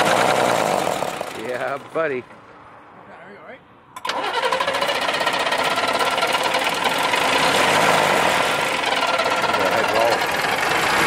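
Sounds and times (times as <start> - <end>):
diesel engine clattering: 4.0 - 11.0.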